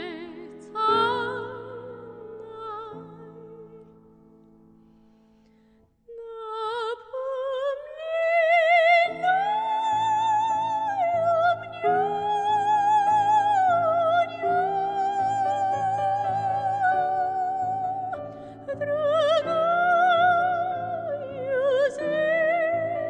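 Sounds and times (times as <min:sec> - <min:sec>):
operatic soprano singing: 0:00.0 - 0:04.0, 0:06.1 - 0:23.0.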